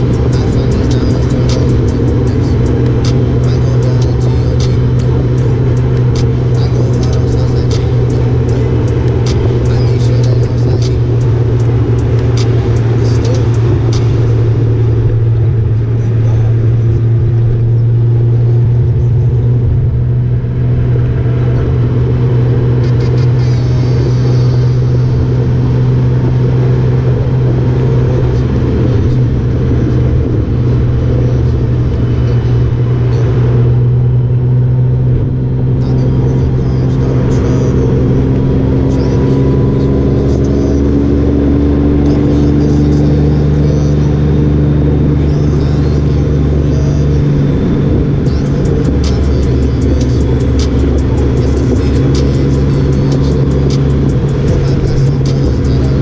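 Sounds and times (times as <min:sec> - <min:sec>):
motorcycle engine and road drone: 0:00.0 - 0:56.0.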